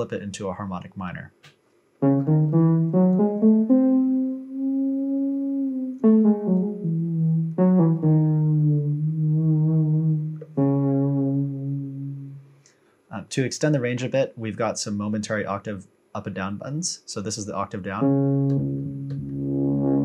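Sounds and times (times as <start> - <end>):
synthesizer melody: 2.0 - 12.5, 18.0 - 20.0.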